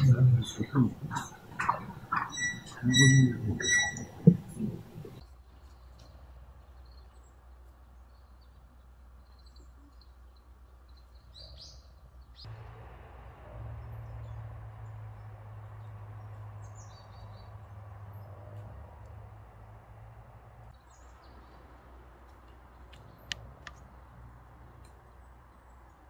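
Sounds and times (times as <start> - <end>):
high bird chirps: 0.0 - 5.2
steady low hum: 0.0 - 5.2.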